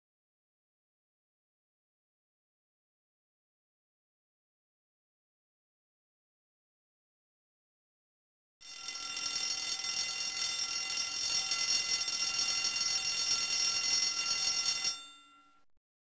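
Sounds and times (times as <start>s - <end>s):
alarm clock bell ringing: 8.6s - 15.7s.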